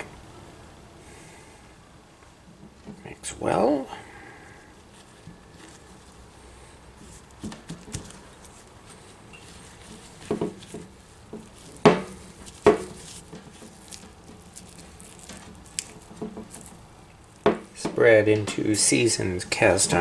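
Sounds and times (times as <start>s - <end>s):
spatula stirring cookie dough: 4.8s - 17.5s.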